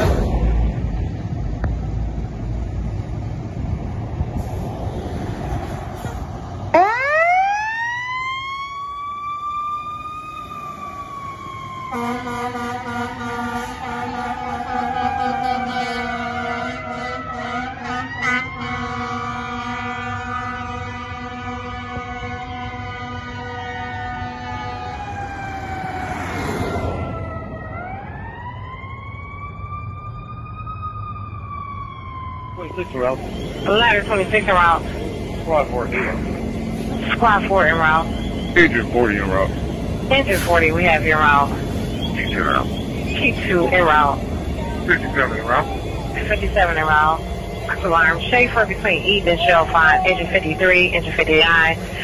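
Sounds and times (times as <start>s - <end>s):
fire engine siren wailing: 5.0s - 52.0s
deep multi-tone horn: 11.9s - 25.1s
car passing close: 25.2s - 27.7s.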